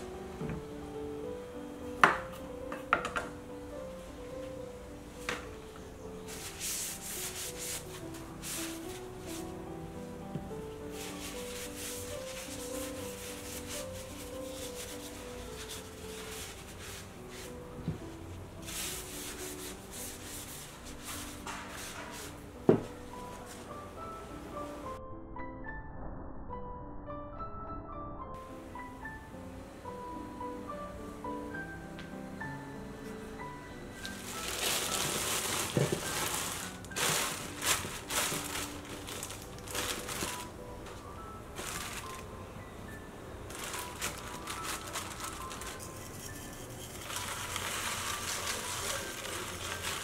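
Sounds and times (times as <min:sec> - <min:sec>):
paper towel rubbing cucumber: 0:06.3 - 0:09.4, 0:10.9 - 0:17.7, 0:18.6 - 0:22.4, 0:34.1 - 0:40.5, 0:43.5 - 0:50.0
plastic bags crinkling: 0:34.0 - 0:40.6, 0:41.5 - 0:42.3, 0:43.5 - 0:46.0, 0:46.9 - 0:50.0.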